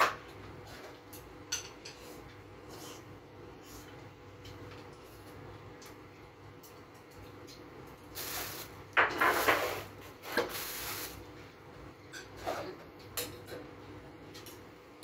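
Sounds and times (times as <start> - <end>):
dishes scraping and rubbing: 1.6 - 4.0, 8.5 - 11.2, 12.1 - 12.8.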